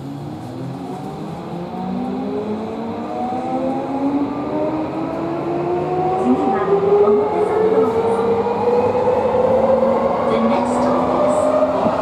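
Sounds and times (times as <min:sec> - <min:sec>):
subway train motors whining: 0:00.0 - 0:12.0.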